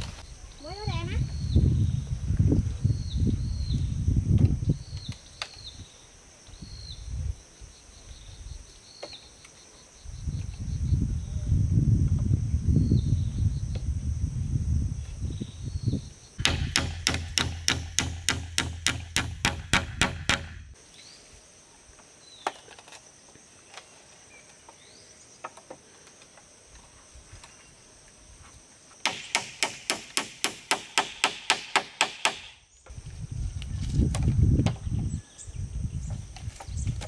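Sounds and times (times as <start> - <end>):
rapid evenly spaced knocks: 16.4 - 20.6, 29.1 - 32.5.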